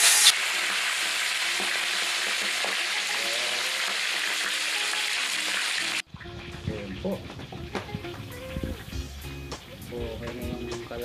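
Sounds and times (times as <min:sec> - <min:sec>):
fish sizzling in hot oil: 0:00.0 - 0:06.6.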